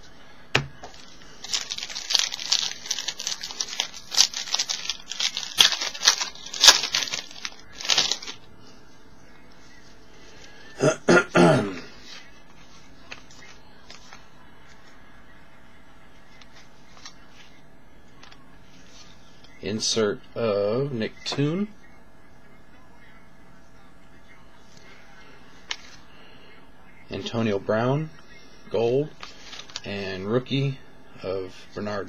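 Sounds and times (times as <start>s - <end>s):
foil wrapper tearing and crinkling: 0.9s - 8.4s, 29.2s - 29.9s
person coughing: 10.8s - 11.9s.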